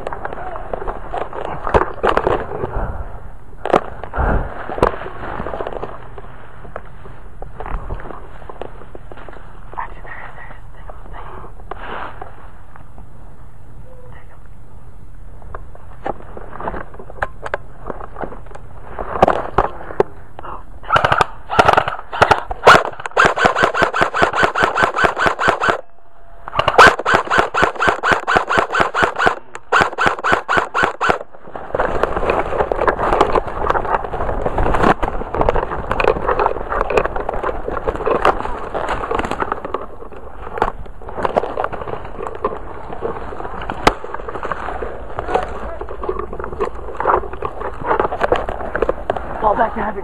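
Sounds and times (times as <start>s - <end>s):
airsoft rifle firing: 20.8s - 31.4s.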